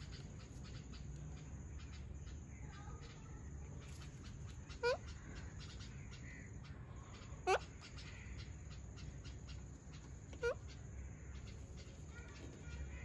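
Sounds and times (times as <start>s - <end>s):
parakeet squawks: 4.6s - 5.8s, 10.4s - 10.7s.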